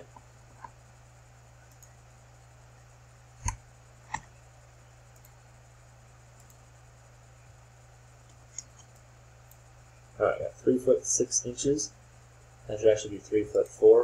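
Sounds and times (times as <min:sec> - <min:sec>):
faint low hum: 0:00.0 - 0:14.0
computer mouse clicks: 0:01.7 - 0:02.0, 0:03.4 - 0:04.3, 0:05.1 - 0:05.4, 0:06.3 - 0:06.7, 0:08.2 - 0:09.7
faint ticks: 0:01.7 - 0:02.0, 0:05.1 - 0:05.4, 0:06.3 - 0:06.7.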